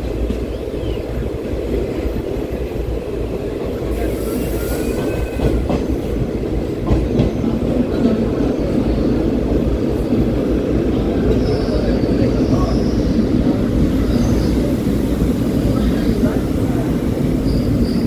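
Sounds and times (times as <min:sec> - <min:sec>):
train rumbling on rails: 0:00.0 - 0:18.0.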